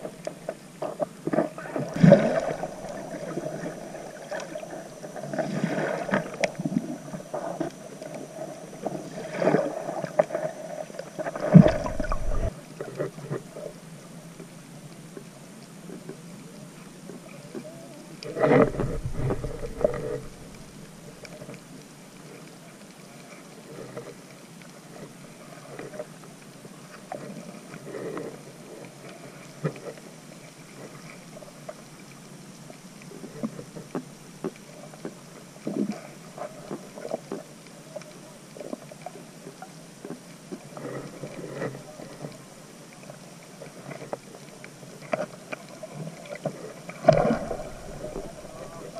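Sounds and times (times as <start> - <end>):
underwater water gurgling: 0.0 - 48.9
water rushing bursts: 1.6 - 7.5, 11.2 - 12.8, 47.0 - 48.9.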